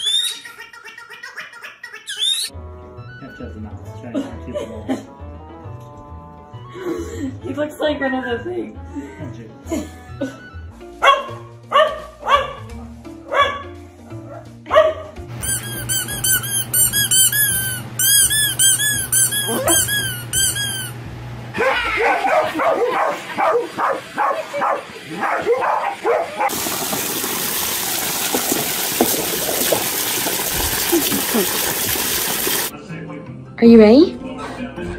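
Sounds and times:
background music: 0:02.5 - 0:15.5, 0:32.7 - 0:34.9
dogs barking: 0:11.0 - 0:15.3, 0:19.3 - 0:20.1, 0:21.6 - 0:26.7
short high squeaks: 0:15.4 - 0:21.0
hose water rushing into plastic pool: 0:23.0 - 0:32.7.

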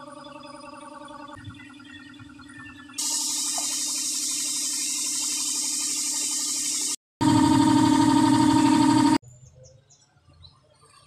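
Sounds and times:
compressed air hissing: 0:03.0 - 0:07.0
air compressor motor hum: 0:03.0 - 0:09.2.

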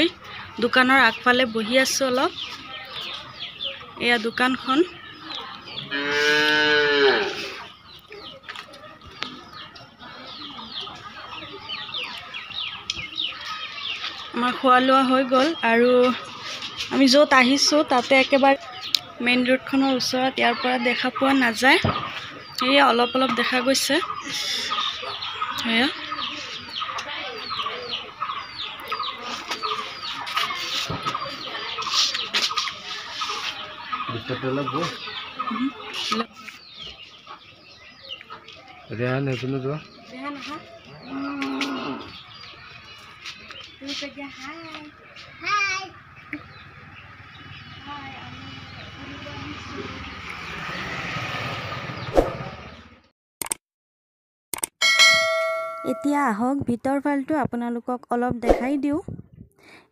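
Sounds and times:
chickens clucking: 0:00.0 - 0:50.9
chicks peeping: 0:00.0 - 0:50.9, 0:51.6 - 0:52.8
small birds chirping: 0:00.0 - 0:53.1.

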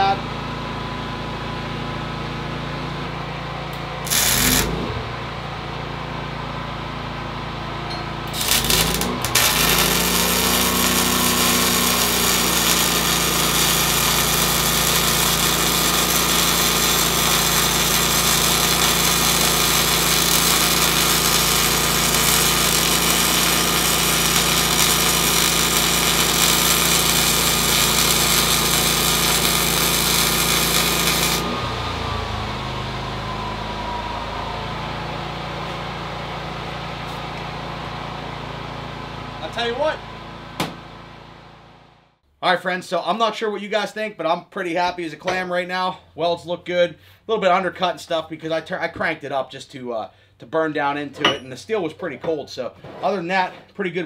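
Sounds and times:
generator running: 0:00.0 - 0:42.2
welding arc hissing: 0:04.0 - 0:05.0, 0:08.3 - 0:31.6.

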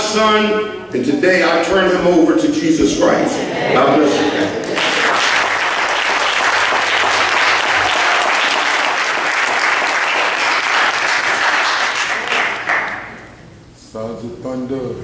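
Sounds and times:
congregation applauding: 0:04.0 - 0:13.2.

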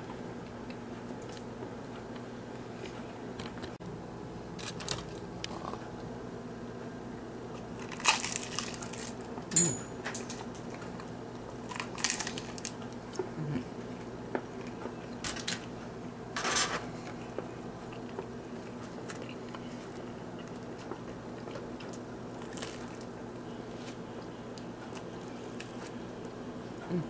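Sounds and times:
crunchy chicken chewing: 0:04.6 - 0:06.0, 0:07.5 - 0:09.4, 0:10.8 - 0:13.3, 0:17.0 - 0:26.0.

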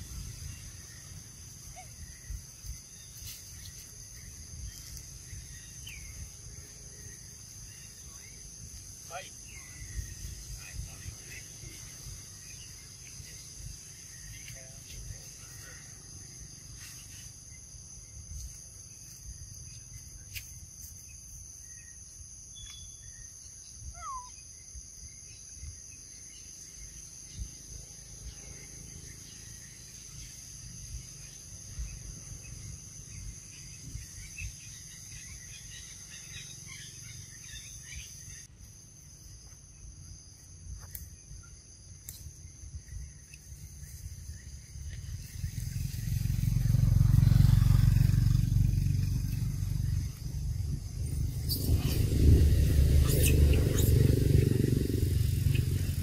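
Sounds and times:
high-pitched insect drone: 0:00.0 - 0:56.0
faint chirps and clicks: 0:14.3 - 0:15.0, 0:22.6 - 0:22.9, 0:40.4 - 0:44.0
low rumble: 0:45.1 - 0:56.0.

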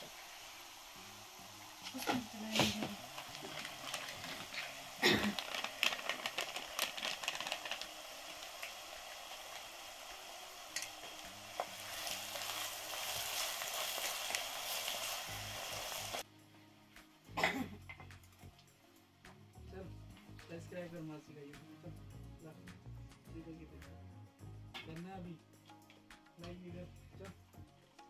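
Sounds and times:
food sizzling in oil: 0:00.0 - 0:16.3.

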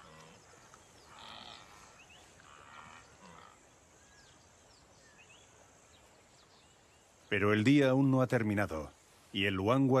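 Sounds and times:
wildebeest grunting calls: 0:00.0 - 0:03.7.

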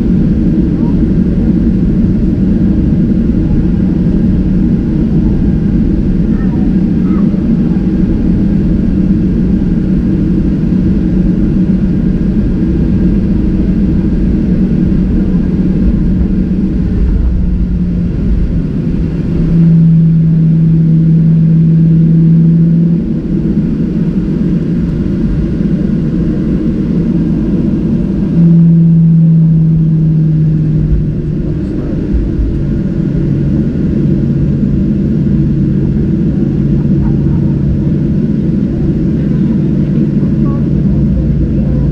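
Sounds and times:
jet engine rumble in cabin: 0:00.0 - 0:41.9
steady low hum: 0:00.0 - 0:41.9.

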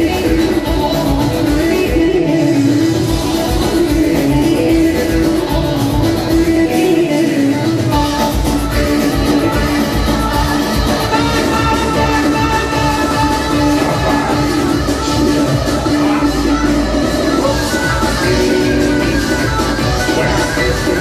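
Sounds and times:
low drum beat: 0:11.0 - 0:16.6.

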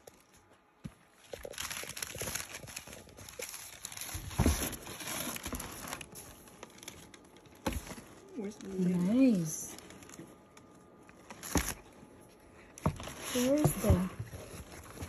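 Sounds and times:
tissue paper rustling: 0:01.0 - 0:10.2, 0:12.9 - 0:15.0.

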